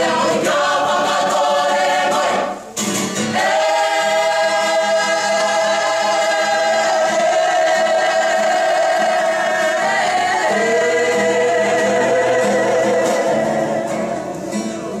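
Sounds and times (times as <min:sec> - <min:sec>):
group singing in unison: 0:00.0 - 0:15.0.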